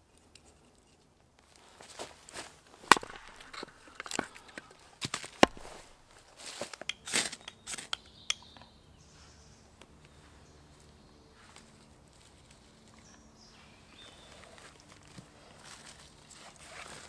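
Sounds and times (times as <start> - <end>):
hatchet splitting kindling: 2.7 - 8.0
falling sticks: 2.8 - 8.1.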